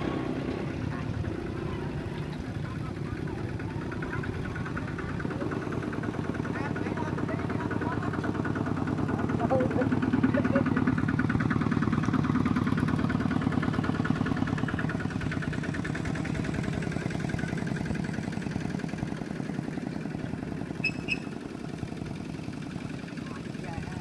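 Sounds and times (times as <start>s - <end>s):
diesel engine putter: 0.0s - 24.0s
short high chirps: 20.8s - 21.3s.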